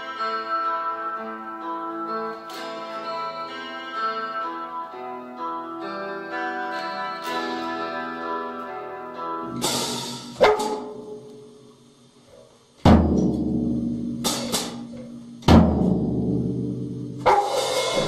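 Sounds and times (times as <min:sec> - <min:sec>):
electric guitar notes ringing: 0:00.0 - 0:11.8, 0:17.0 - 0:18.0
cymbal crashes: 0:09.5 - 0:11.8, 0:12.9 - 0:18.0
drum hits with deep thud: 0:12.8 - 0:18.0.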